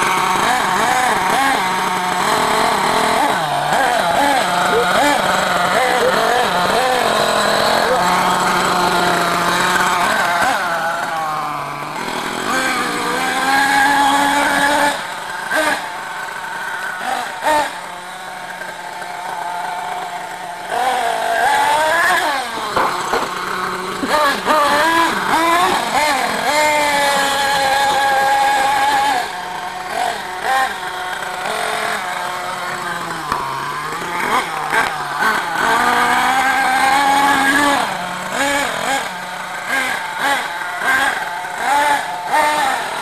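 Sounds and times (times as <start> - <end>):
small nitro engine revving: 0.0 - 43.0.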